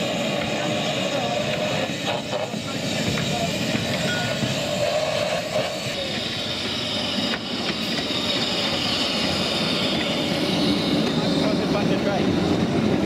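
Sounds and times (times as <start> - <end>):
hiss of escaping steam: 0.0 - 13.0
wheels rumbling on rail: 0.0 - 13.0.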